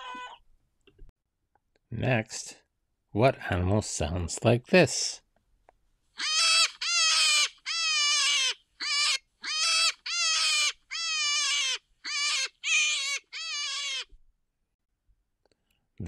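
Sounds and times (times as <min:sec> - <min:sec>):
rabbit squealing: 0:00.0 - 0:00.4, 0:06.2 - 0:14.2.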